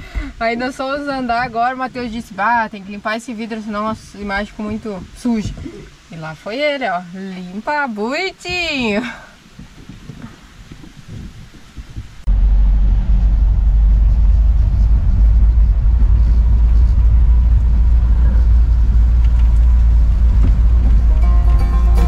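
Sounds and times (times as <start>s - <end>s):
vehicle rumbling: 11.4s - 22.0s.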